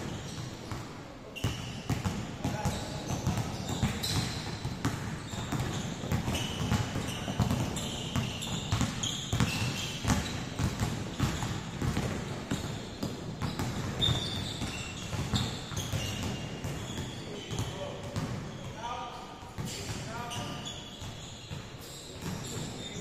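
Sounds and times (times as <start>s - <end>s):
shoe squeaks: 0.0s - 11.6s, 12.5s - 18.9s, 19.6s - 23.0s
basketballs bouncing on wood floor: 0.0s - 18.9s, 19.6s - 23.0s.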